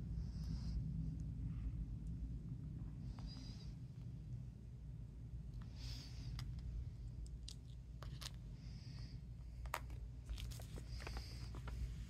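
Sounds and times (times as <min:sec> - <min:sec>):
low hum: 0:00.0 - 0:12.0
paper rustling: 0:10.2 - 0:12.0.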